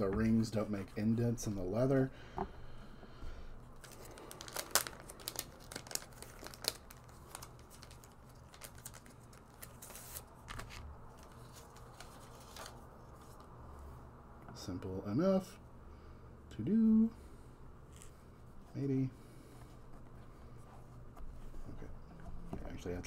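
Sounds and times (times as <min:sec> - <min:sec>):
plastic packaging crinkling: 0:03.8 - 0:12.8.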